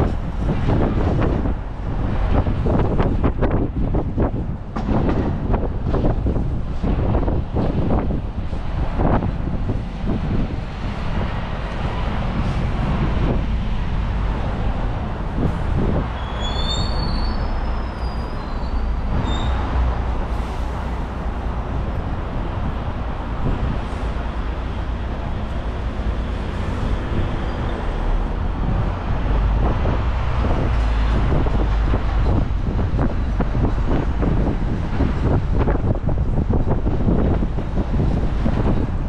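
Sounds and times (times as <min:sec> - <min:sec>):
bus and traffic rumble: 0:00.0 - 0:39.0
high squeals: 0:16.2 - 0:19.7.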